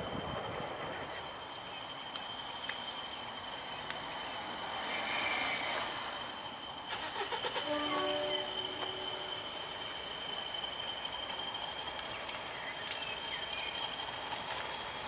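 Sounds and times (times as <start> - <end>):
distant diesel locomotive engine: 0.0 - 15.0
train coaches rolling on rails: 0.0 - 15.0
short tones: 6.9 - 10.3.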